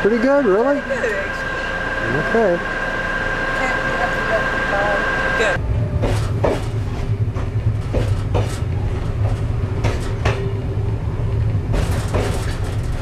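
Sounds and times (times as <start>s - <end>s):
train rumbling on track: 0.0s - 13.0s
wheels clicking on rails: 4.2s - 13.0s.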